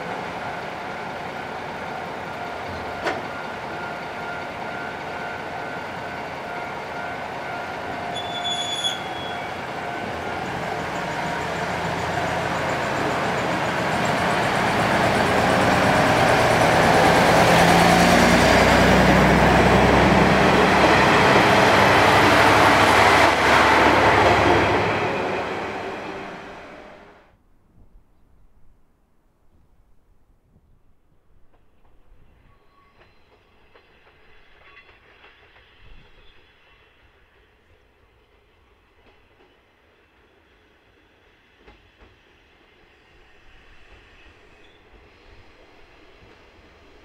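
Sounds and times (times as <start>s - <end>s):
diesel railcar engine: 0.0s - 27.2s.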